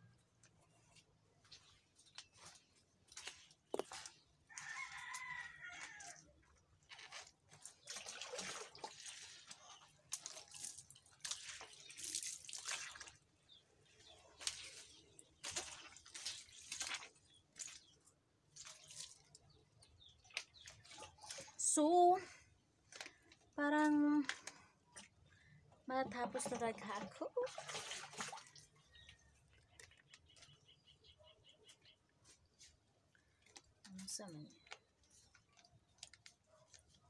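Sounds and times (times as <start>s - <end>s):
water splashing on skin and ground: 1.6s - 21.6s, 26.4s - 30.3s
rooster crowing: 4.5s - 6.2s.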